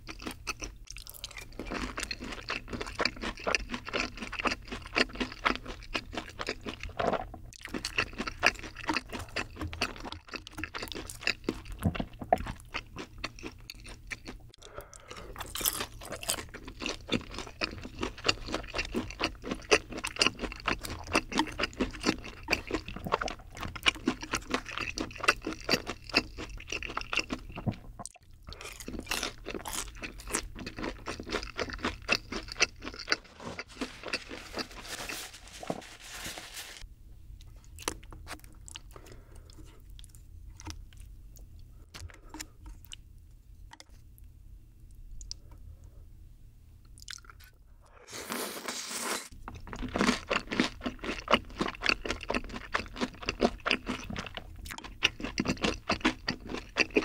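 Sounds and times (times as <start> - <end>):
chewing crunchy fried chicken: 0.0 - 36.8, 37.4 - 44.1, 46.8 - 57.0.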